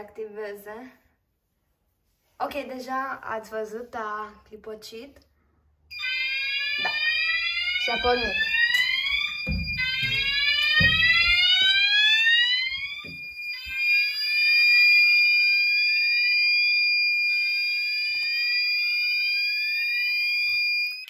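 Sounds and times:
fire alarm sweeping tone: 0:05.9 - 0:21.0.

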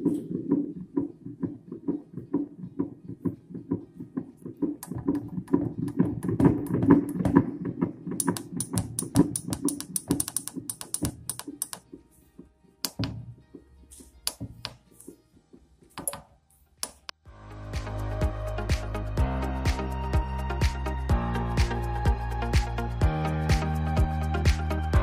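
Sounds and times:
sharp clicks: 0:08.2 - 0:11.8, 0:16.8 - 0:17.2.

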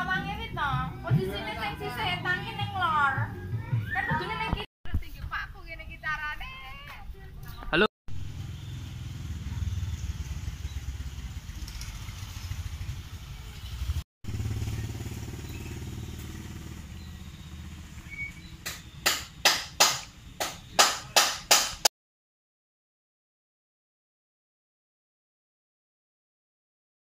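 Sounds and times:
motorcycle engine idling: 0:08.2 - 0:19.1.

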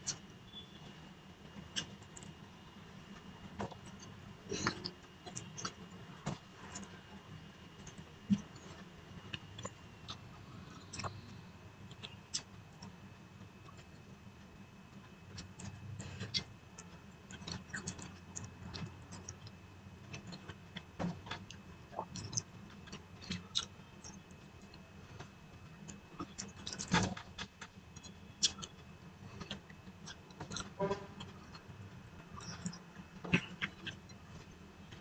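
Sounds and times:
low steady hum: 0:00.0 - 0:35.0
person chewing food: 0:03.6 - 0:07.1, 0:07.8 - 0:12.5, 0:15.4 - 0:35.0.

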